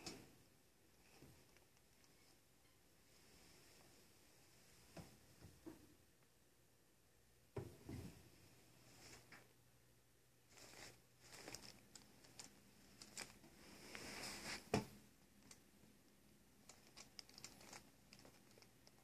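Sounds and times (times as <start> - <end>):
paper envelopes crinkling: 10.5 - 14.5, 16.7 - 19.0.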